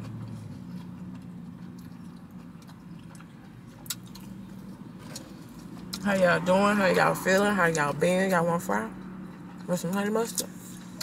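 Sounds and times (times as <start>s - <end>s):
person chewing food: 0.0s - 6.0s
low steady hum: 0.0s - 11.0s.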